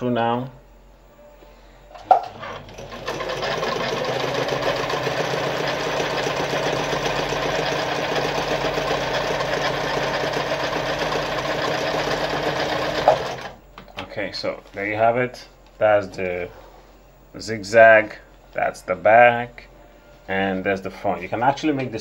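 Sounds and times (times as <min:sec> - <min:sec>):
sewing machine running: 0:02.3 - 0:13.6.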